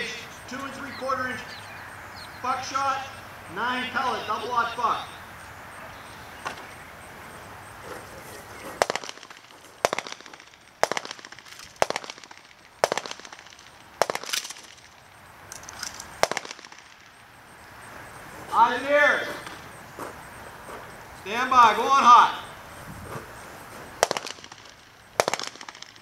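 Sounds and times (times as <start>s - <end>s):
gunshots with ringing tail: 8.8s - 14.8s, 16.2s - 17.1s, 24.0s - 26.0s.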